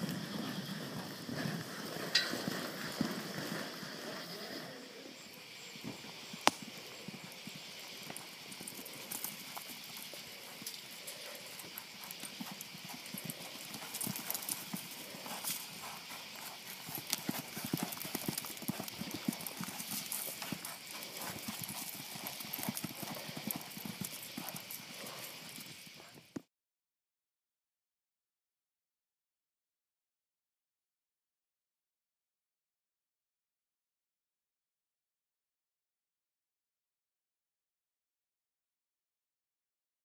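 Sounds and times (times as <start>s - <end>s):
horse hoofbeats on dirt: 0.0s - 4.8s, 5.4s - 26.4s.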